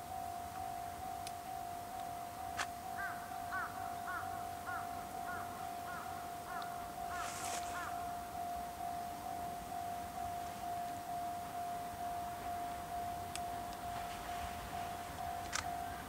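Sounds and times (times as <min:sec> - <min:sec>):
level-crossing alarm ringing: 0:00.0 - 0:16.0
crow cawing: 0:03.0 - 0:08.1.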